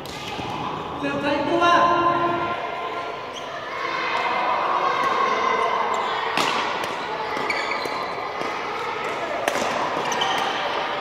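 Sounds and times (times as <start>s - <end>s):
din of a sports hall: 0.0s - 11.0s
racket striking shuttlecock: 6.4s - 10.6s
shoe squeaks: 7.3s - 8.2s, 10.0s - 10.6s.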